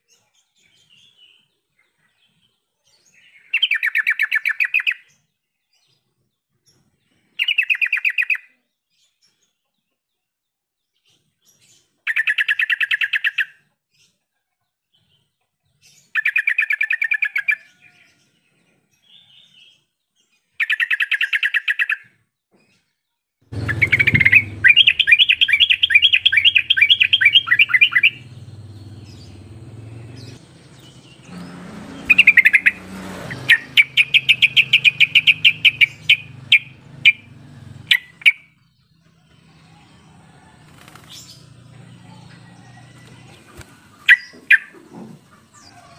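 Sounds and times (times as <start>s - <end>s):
bulbul chattering song: 23.5s - 39.6s, 43.3s - 45.6s.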